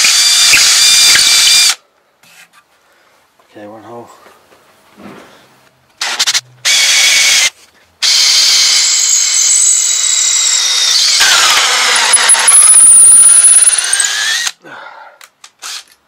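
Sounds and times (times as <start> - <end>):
electric drill boring into wood: 0.0 - 1.8, 6.0 - 14.6.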